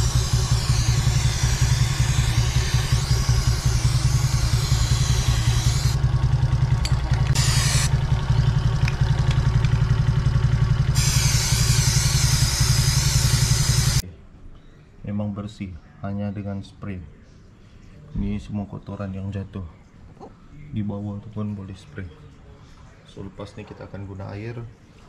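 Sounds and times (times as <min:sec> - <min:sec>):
aerosol spray hissing: 0:00.0 - 0:06.0, 0:07.4 - 0:07.9, 0:10.9 - 0:14.0
motorcycle engine idling: 0:00.0 - 0:14.0.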